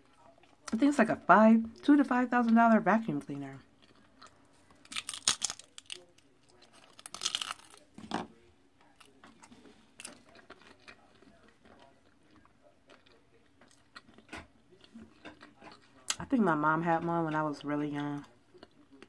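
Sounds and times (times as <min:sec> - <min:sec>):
soft chewing: 0:00.0 - 0:19.0
crunchy pizza bites: 0:03.5 - 0:16.2.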